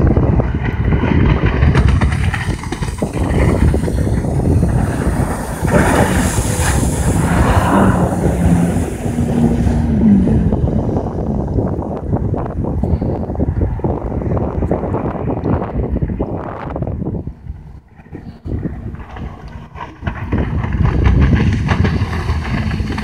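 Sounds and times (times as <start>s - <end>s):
jet ski engine drone: 0.0s - 23.0s
wind buffeting microphone: 0.0s - 23.0s
water spray hissing: 4.6s - 9.0s.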